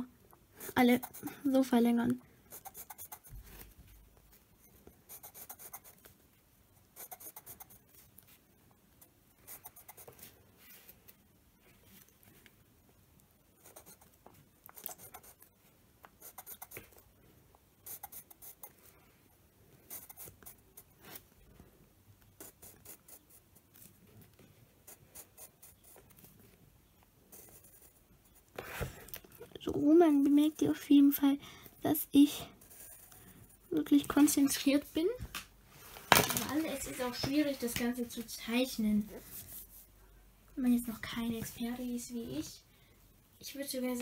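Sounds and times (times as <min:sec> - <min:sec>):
pencil scratching on paper: 0:00.6 - 0:01.6, 0:02.5 - 0:03.6, 0:04.6 - 0:06.1, 0:06.9 - 0:08.3, 0:09.5 - 0:10.3, 0:13.6 - 0:15.5, 0:16.2 - 0:17.0, 0:17.8 - 0:18.8, 0:19.8 - 0:21.2, 0:22.4 - 0:26.2, 0:27.3 - 0:28.9, 0:32.5 - 0:33.8.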